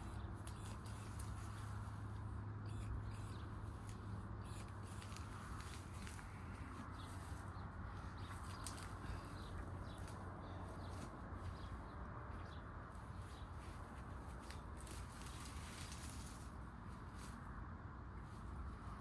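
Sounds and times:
plant stalks rustling and snapping: 3.8 - 7.4, 8.2 - 11.6, 13.6 - 17.4.

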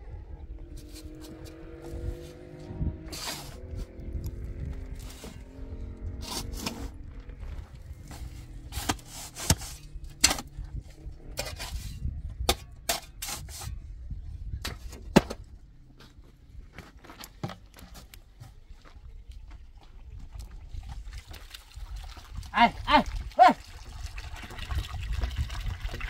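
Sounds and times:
shovel scraping sand: 0.7 - 4.0, 4.9 - 5.5, 6.1 - 7.0, 8.0 - 10.6, 11.3 - 13.8.

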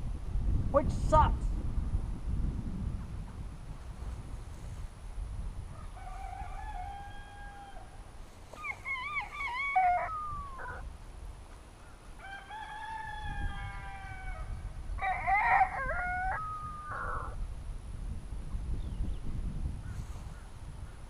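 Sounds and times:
rooster crowing: 5.7 - 8.0, 8.6 - 10.8, 12.2 - 17.4.

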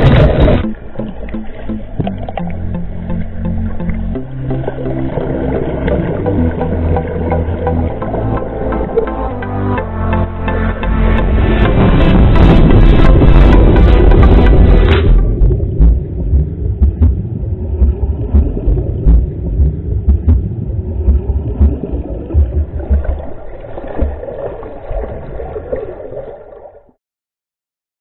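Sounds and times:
underwater rumble and bubbling: 0.0 - 27.0
underwater knocks: 11.2 - 24.6.

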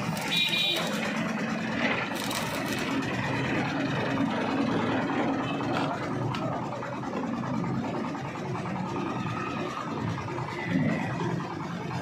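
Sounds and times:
welding arc crackling: 0.0 - 3.4.

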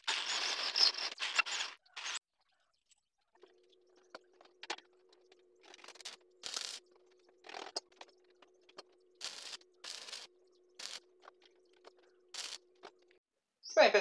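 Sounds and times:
welding arc crackle: 0.0 - 2.2, 5.6 - 6.8, 7.4 - 13.1.

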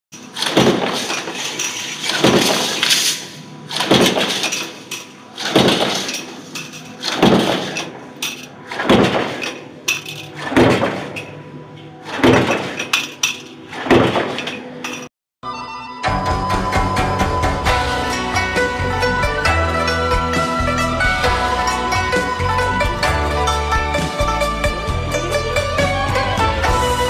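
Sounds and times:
stamping press metallic strikes: 0.2 - 11.4, 12.0 - 14.7.

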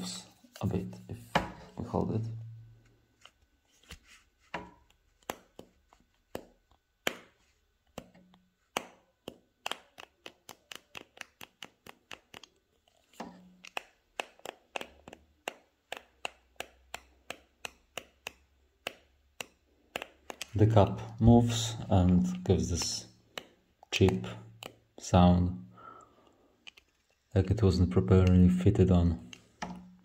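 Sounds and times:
plastic cap clicking: 13.6 - 20.6.

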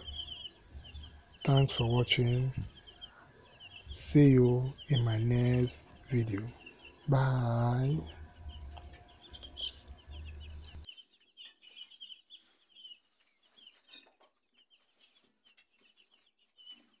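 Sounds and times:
chicks peeping: 0.0 - 17.0
thin high whine: 3.9 - 10.9.

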